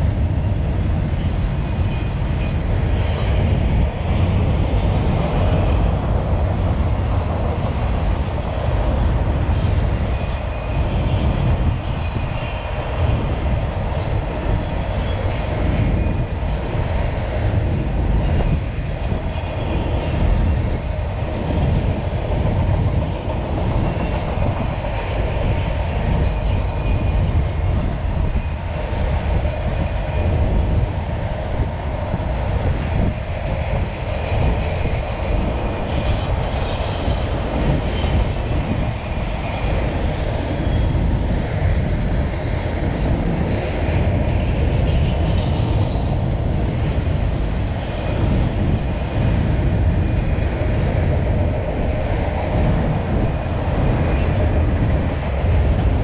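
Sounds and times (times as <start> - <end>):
freight train wheels rumbling: 0.0 - 56.0
train clickety-clack: 0.0 - 56.0.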